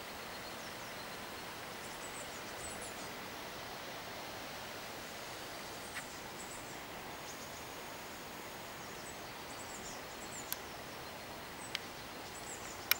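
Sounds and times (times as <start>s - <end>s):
faint bird chirps: 0.0s - 3.2s, 5.8s - 12.9s
rushing background hiss: 0.0s - 12.9s.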